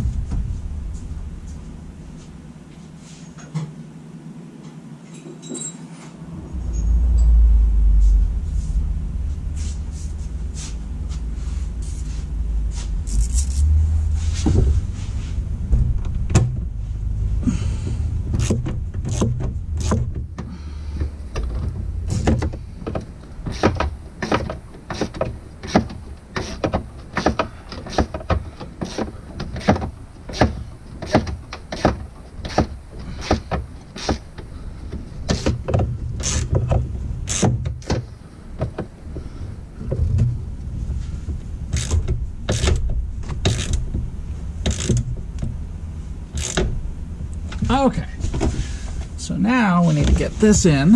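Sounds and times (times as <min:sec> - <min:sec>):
handling thumps and knocks: 0:14.0 - 0:17.2, 0:17.8 - 0:45.6
socket ratchet clicking: 0:37.2 - 0:37.6, 0:44.7 - 0:45.1, 0:46.4 - 0:46.7.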